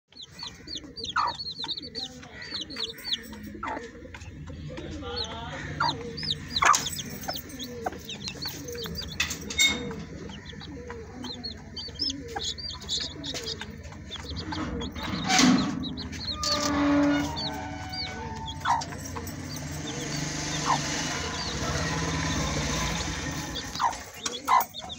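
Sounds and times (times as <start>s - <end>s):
chicks peeping: 0.1s - 24.9s
hen clucking: 0.1s - 24.9s.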